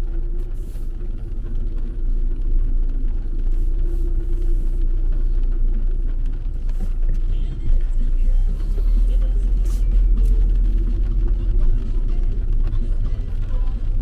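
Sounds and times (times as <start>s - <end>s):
car rolling over wet paving: 0.0s - 14.0s.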